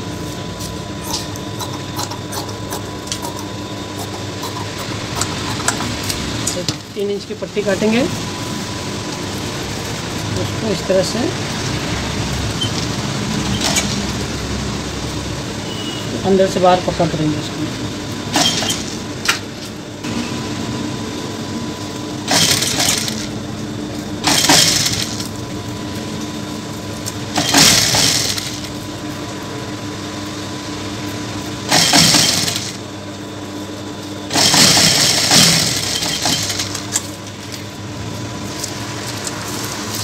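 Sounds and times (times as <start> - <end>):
sewing machine motor humming: 12.6 - 14.3, 18.3 - 19.1, 22.2 - 23.4, 24.2 - 25.4, 27.3 - 28.8, 31.6 - 32.8, 34.3 - 37.1
fast machine stitching: 13.4 - 14.2, 18.3 - 19.0, 22.2 - 23.4, 24.2 - 25.3, 27.3 - 28.8, 31.7 - 32.8, 34.3 - 37.0.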